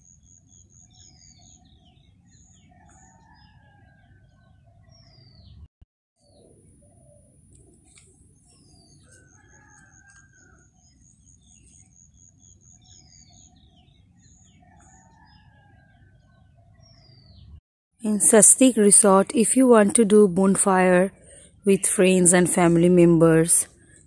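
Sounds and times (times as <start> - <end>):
small birds chirping: 0.0 - 17.6.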